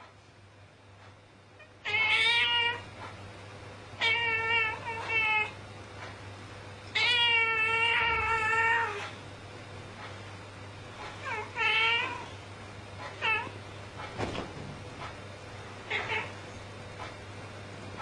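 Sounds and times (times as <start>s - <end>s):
cat yowling: 1.8s - 2.9s, 4.0s - 5.6s, 6.9s - 9.1s, 11.2s - 12.3s, 13.1s - 13.6s, 15.9s - 16.4s.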